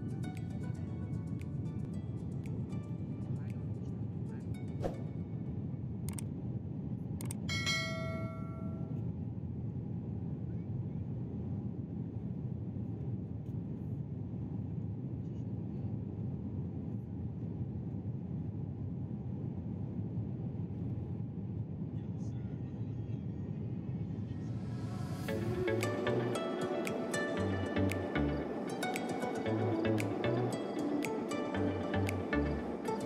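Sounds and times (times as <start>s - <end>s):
jet airliner cabin rumble: 9.2s - 33.0s.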